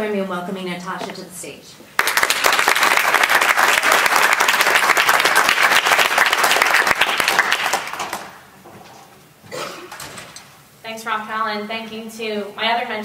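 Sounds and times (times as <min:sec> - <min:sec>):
audience applause: 0:02.0 - 0:08.4.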